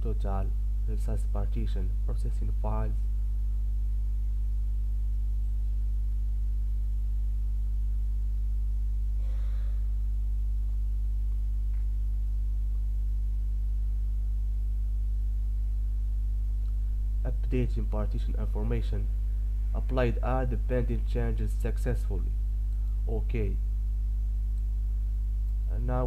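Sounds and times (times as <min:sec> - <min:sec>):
low electrical mains hum: 0:00.0 - 0:26.0.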